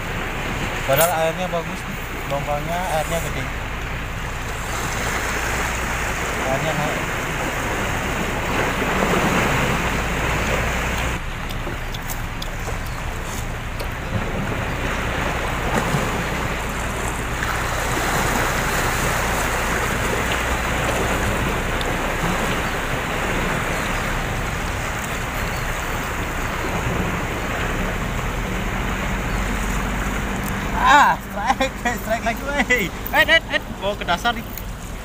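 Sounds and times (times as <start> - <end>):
sea water washing against pier: 0.0 - 35.0.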